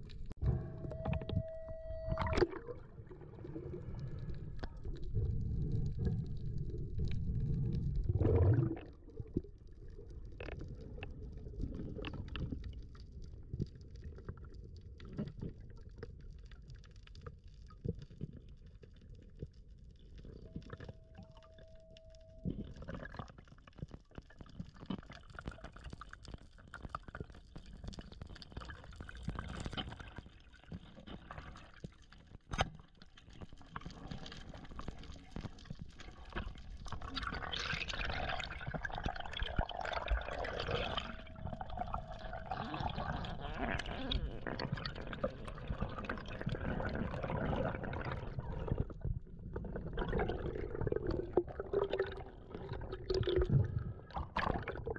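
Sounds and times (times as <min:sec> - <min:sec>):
underwater clicks and crackles: 0:00.0 - 0:54.9
underwater rumble of moving water: 0:00.0 - 0:54.9
steady beep: 0:00.4 - 0:02.6, 0:20.6 - 0:22.8.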